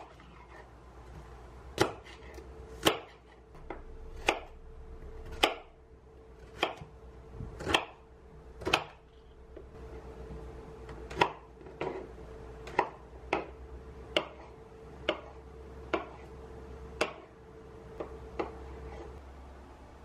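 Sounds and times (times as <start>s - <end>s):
knife chopping on cutting board: 1.8s - 4.6s, 5.2s - 5.7s, 6.4s - 6.9s, 7.5s - 8.0s, 8.6s - 9.0s, 11.1s - 15.3s, 15.9s - 16.2s.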